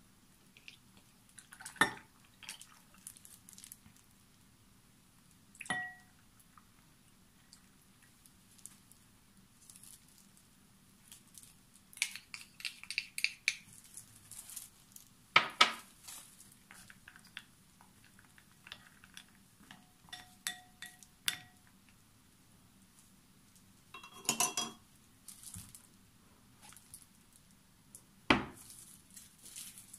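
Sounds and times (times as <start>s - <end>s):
utensils tapping glass bowl: 5.6s - 6.1s, 12.0s - 13.6s, 19.7s - 21.7s, 24.0s - 24.8s
wooden spatula tapping glass bowl: 19.7s - 21.6s.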